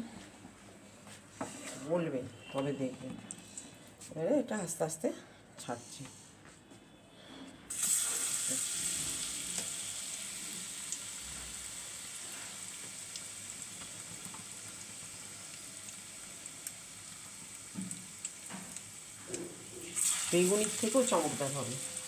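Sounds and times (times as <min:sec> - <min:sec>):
batter sizzling in hot oil: 0:07.7 - 0:22.0.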